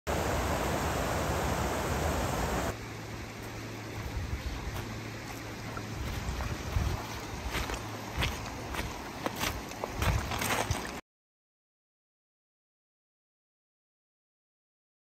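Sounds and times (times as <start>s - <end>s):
river water rushing: 0.1s - 11.0s.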